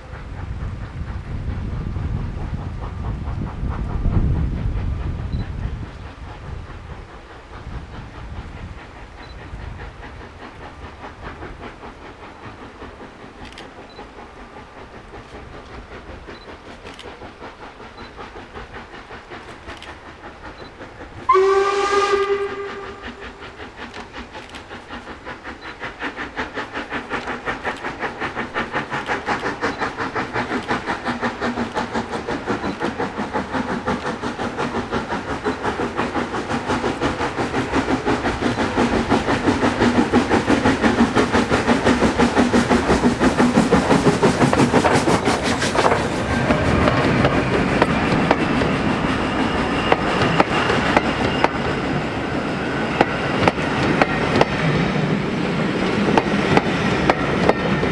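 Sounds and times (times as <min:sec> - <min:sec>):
steam locomotive exhaust beats: 0:00.0 - 0:57.9
steam whistle blast: 0:21.3 - 0:23.4.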